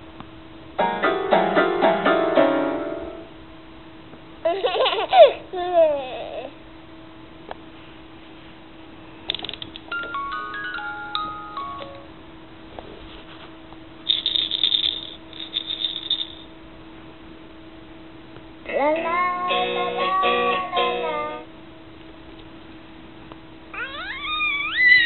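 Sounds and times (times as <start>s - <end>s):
faint steady hum: 0.0s - 25.0s
rattle shaking: 14.0s - 16.5s
baby's sing-song voice: 18.7s - 21.5s
baby squealing: 23.8s - 25.0s.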